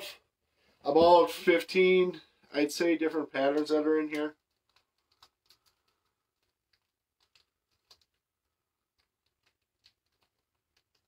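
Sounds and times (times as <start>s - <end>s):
faint clicks and taps: 3.4s - 11.0s.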